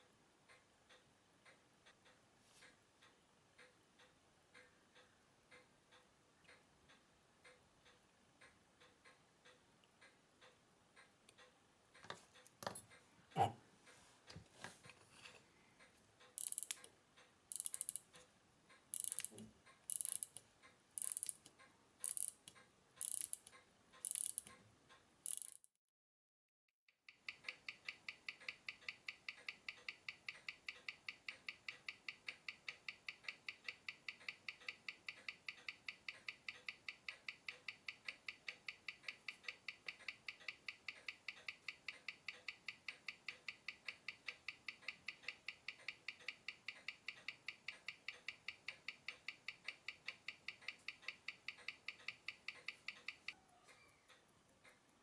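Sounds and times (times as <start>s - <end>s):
watch ticking through speaker: 0.5s - 12.1s, 15.8s - 25.7s, 26.9s - 55.0s
watch ratchet clicking: 16.2s - 25.7s, 27.1s - 53.4s.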